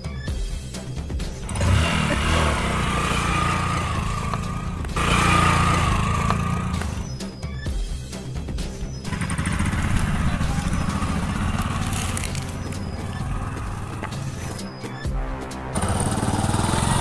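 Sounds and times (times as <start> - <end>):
background music: 0.0 - 17.0
small motorcycle engine revving: 1.4 - 7.2, 9.1 - 14.6, 15.7 - 17.0.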